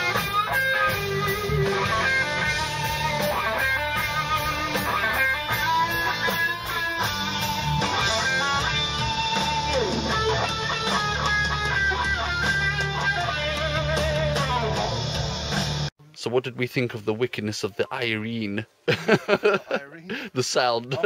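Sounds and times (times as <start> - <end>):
electric guitar riff: 0.0 - 15.9.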